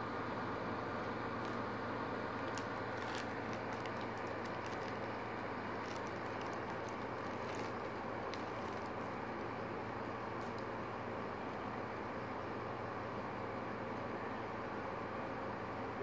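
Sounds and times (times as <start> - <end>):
plastic bag crinkling: 1.0 - 9.5, 10.3 - 10.8.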